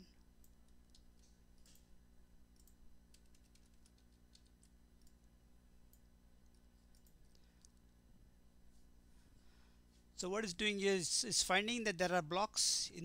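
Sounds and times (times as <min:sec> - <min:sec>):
steady low hum: 0:00.0 - 0:13.0
keyboard typing: 0:00.4 - 0:01.9, 0:02.5 - 0:05.3, 0:05.9 - 0:07.9.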